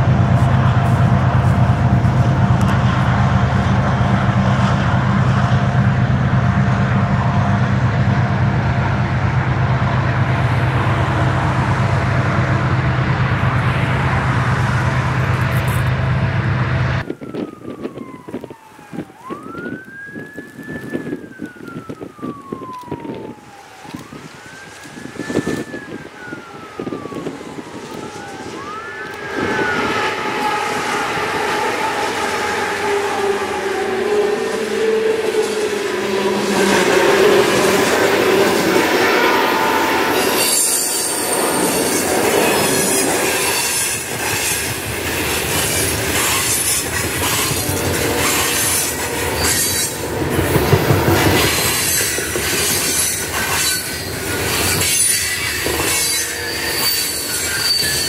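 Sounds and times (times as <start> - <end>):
loud low rumble: 0.0 - 17.0
siren wailing: 8.5 - 58.0.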